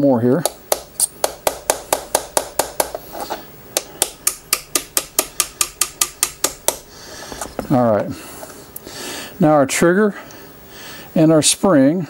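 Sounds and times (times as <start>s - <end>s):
small hammer tapping pin punch: 3.8s - 6.8s.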